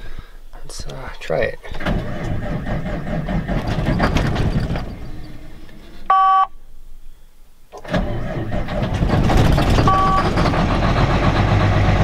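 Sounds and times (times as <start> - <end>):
starter cranking diesel engine: 1.7 - 5.7, 7.8 - 12.0
short loud warning beep: 6.1 - 6.6, 9.9 - 10.4.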